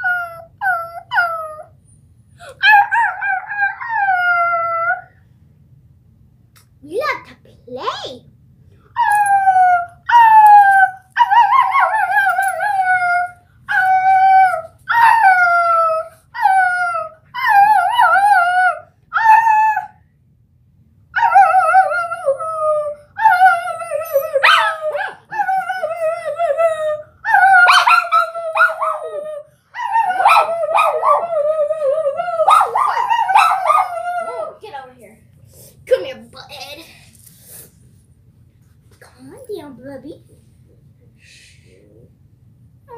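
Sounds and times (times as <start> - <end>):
dog yelps: 2.6 - 4.2, 23.2 - 25.7, 27.2 - 29.2, 29.8 - 31.4, 32.4 - 34.6
dog howling: 9.0 - 20.0, 21.2 - 34.6
girl howling: 21.2 - 34.7.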